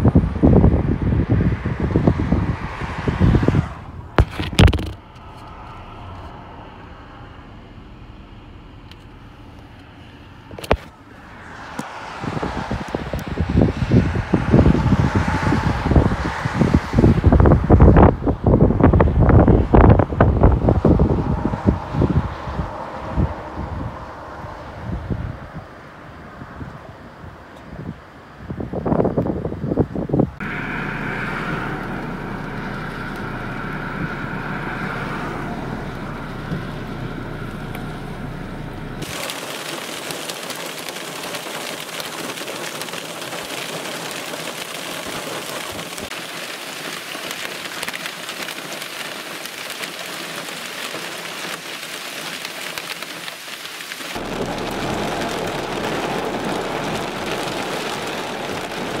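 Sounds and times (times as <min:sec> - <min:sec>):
heavy rain and hail: 0:00.0 - 0:08.0, 0:10.5 - 0:24.8, 0:39.0 - 0:59.0
wind through wheat field: 0:00.0 - 0:59.0.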